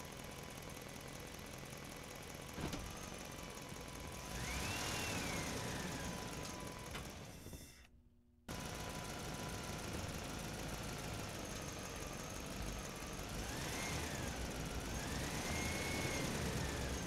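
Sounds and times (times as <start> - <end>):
engine running: 0.0 - 7.6, 8.5 - 17.0.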